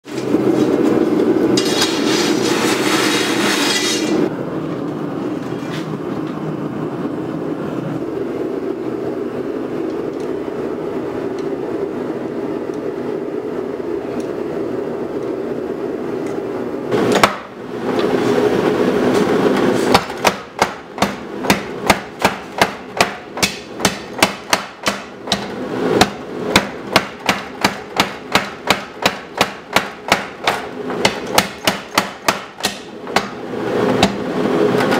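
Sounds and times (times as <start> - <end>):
hammer striking hot steel: 17.1 - 17.6, 19.8 - 33.4, 34.0 - 34.3.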